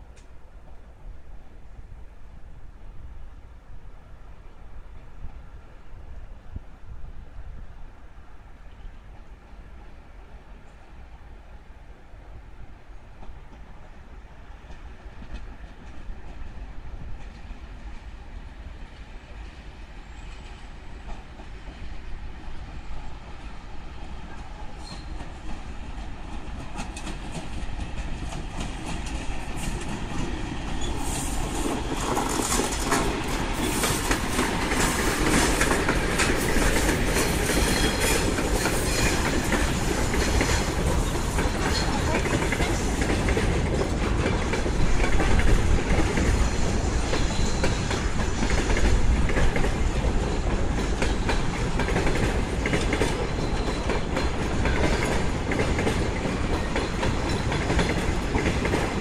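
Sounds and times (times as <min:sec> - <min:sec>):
diesel locomotive engine: 0:07.7 - 0:59.0
train wheels clattering over rail joints: 0:24.3 - 0:59.0.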